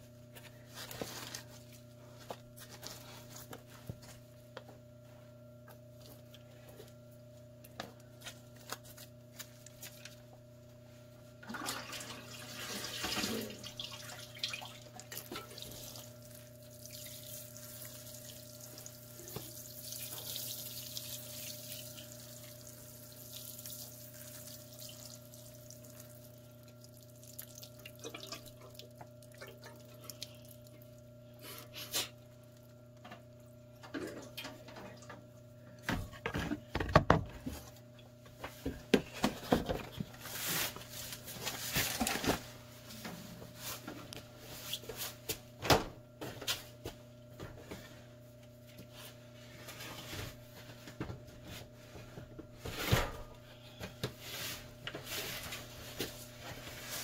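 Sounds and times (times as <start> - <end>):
water sprinkling onto compost: 16.7 - 28.0.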